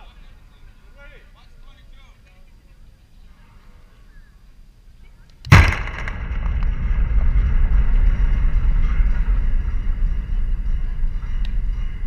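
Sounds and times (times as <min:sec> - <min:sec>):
low rumbling noise: 0:04.7 - 0:12.0.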